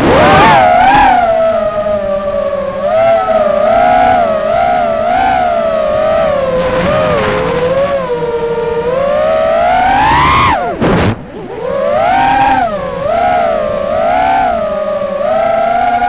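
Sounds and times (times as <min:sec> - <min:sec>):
drone propellers whining: 0:00.0 - 0:16.0.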